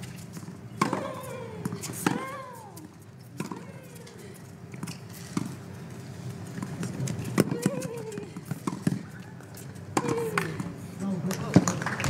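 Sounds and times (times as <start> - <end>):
tennis ball bouncing: 0.0 - 5.6, 6.6 - 10.6
tennis ball struck by rackets: 0.8 - 2.4, 3.4 - 3.7, 7.3 - 9.2.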